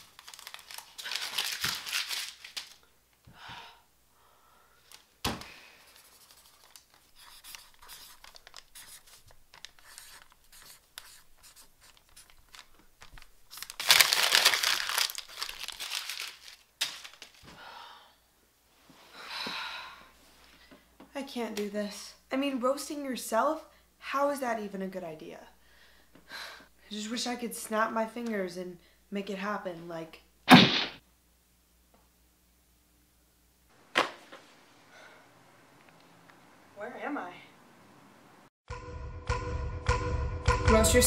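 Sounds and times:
paper tearing and crumpling: 0.0 - 2.8, 5.9 - 17.4
marker scratching on paper: 5.9 - 12.4
sharp knock: 30.5 - 31.0.

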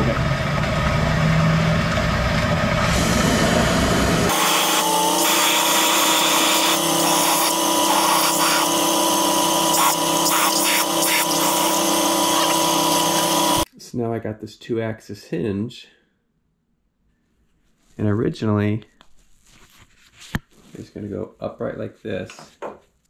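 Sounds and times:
low rumbling machine: 0.0 - 4.4
power tool whine: 0.2 - 13.7.

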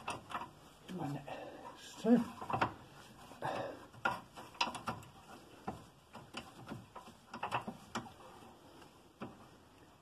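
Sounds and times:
metallic clicks and knocks: 0.0 - 0.8, 2.3 - 2.9, 3.9 - 8.2.

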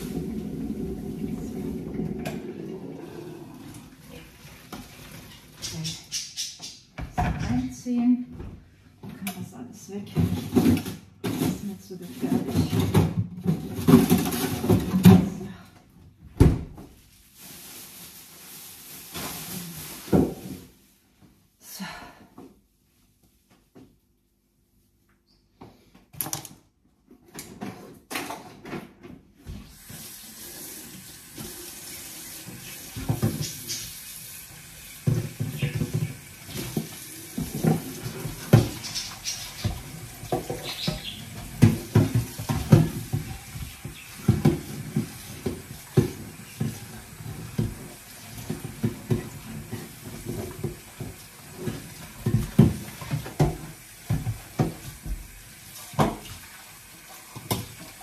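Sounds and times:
knocks and clatter against sink: 7.0 - 7.8, 10.0 - 15.5, 32.6 - 33.8, 34.9 - 56.3.

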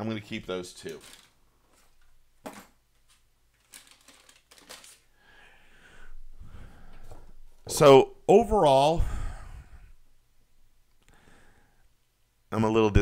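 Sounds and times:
plastic clicks and crinkles: 0.7 - 5.1
plastic packages knocking on table: 2.4 - 2.8.

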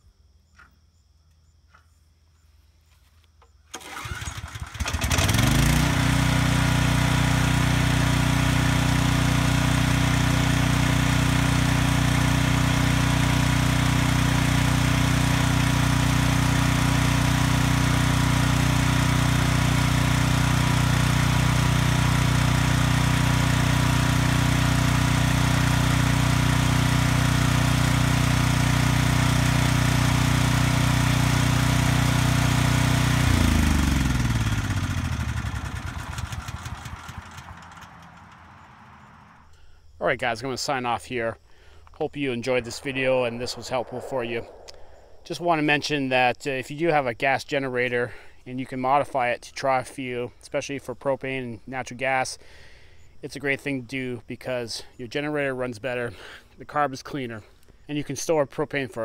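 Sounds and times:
generator engine running: 3.8 - 39.6.

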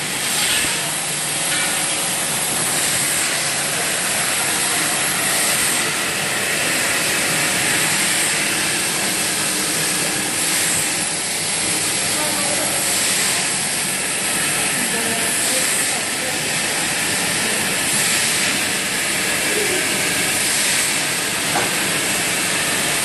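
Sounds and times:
bottling machine hissing and running: 0.0 - 23.0.

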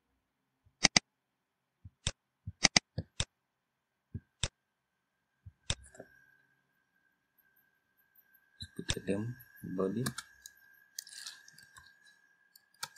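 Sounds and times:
mouse and keyboard clicks: 0.8 - 1.1, 1.9 - 3.3, 5.6 - 6.0, 10.0 - 12.0, 12.6 - 12.9
faint steady high tone: 5.9 - 12.9.

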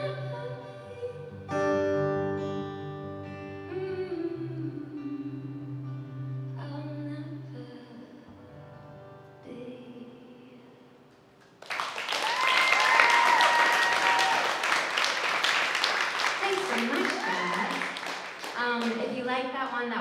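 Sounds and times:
acoustic guitar chords: 0.0 - 11.4
audience applause and cheers: 11.6 - 19.1.

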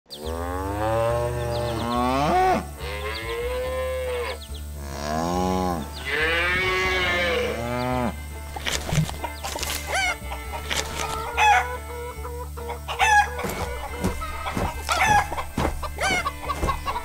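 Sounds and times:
cows mooing: 0.2 - 17.0.

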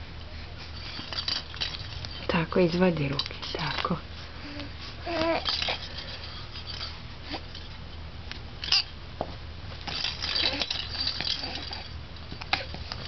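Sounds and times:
beads rattling in baby rattle: 0.8 - 7.8, 9.8 - 13.0.

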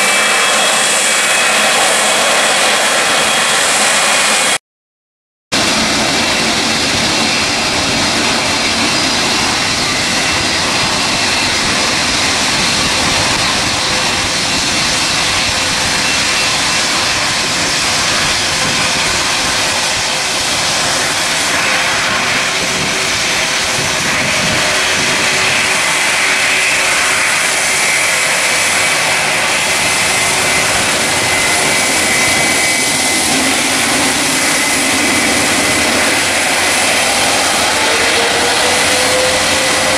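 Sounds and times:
jet engines rushing and whining: 0.0 - 4.6, 5.6 - 39.9.

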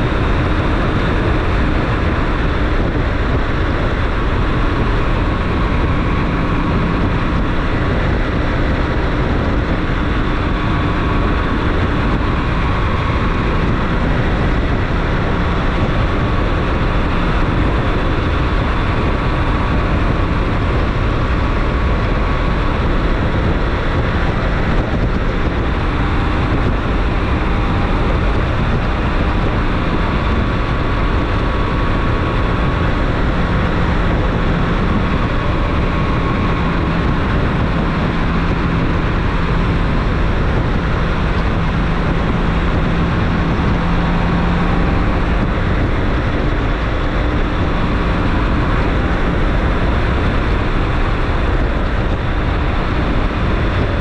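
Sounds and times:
motorcycle engine cruising: 0.0 - 54.0
road noise: 0.0 - 54.0
wind rushing: 0.0 - 54.0.

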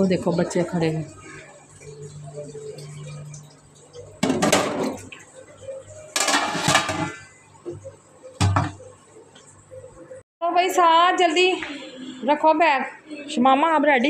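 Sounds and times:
metal pots and utensils clattering: 2.8 - 5.3, 6.1 - 7.4, 8.4 - 8.9.

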